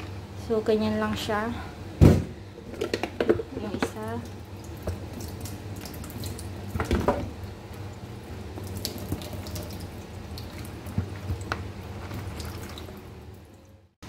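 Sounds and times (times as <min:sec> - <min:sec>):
louder knock: 0:02.0 - 0:02.3.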